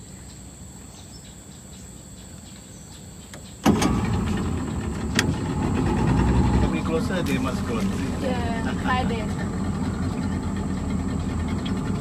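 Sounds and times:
faint insect chirring: 0.0 - 3.6
boat motor running: 3.6 - 12.0.

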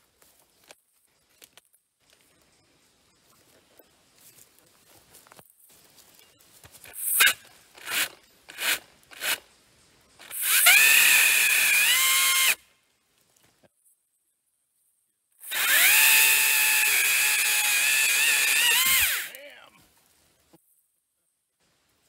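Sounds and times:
electric chainsaw cutting log: 7.0 - 9.4, 10.2 - 12.6, 15.4 - 19.4.

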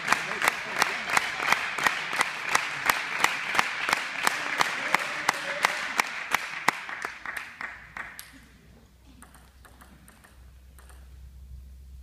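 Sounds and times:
applause and crowd noise: 0.0 - 8.3
rhythmic clapping: 0.0 - 8.5.

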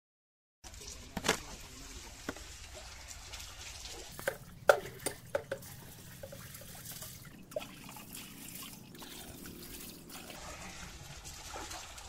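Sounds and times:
water pouring into metal pipe: 0.6 - 12.0
metal jug clinking on pipe: 4.1 - 8.8.

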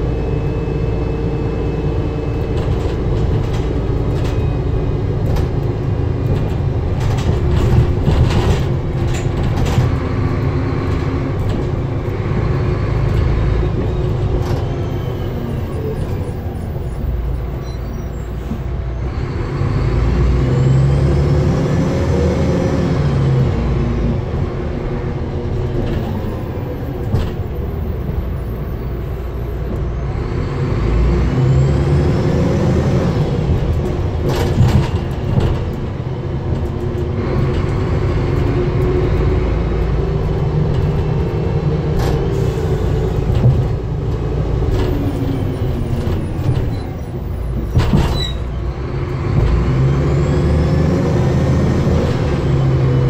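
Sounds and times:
bus diesel engine accelerating: 0.0 - 53.0
sharp knocks from bus body: 33.8 - 35.9, 47.5 - 48.5.

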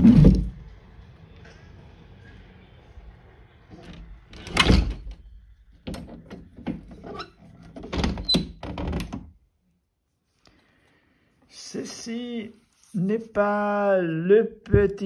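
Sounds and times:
window frame squeak: 5.9 - 9.1.

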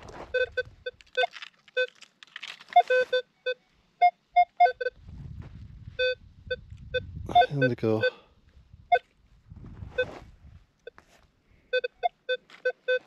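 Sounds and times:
metal detector beeping: 0.1 - 2.0, 2.7 - 5.0, 6.0 - 8.2, 11.6 - 13.0.

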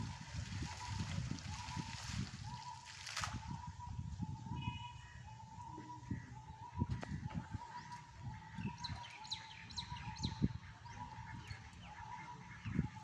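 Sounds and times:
bird chirping: 8.6 - 12.8.

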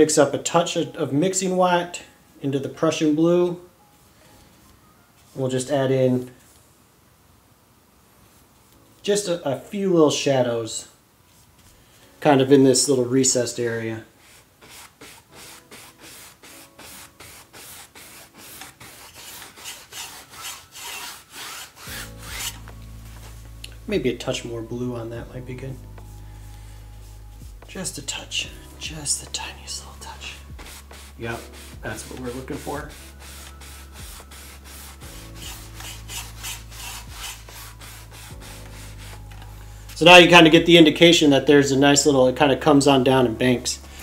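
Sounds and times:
paintbrush scratching on canvas: 14.1 - 23.5, 25.7 - 39.6.

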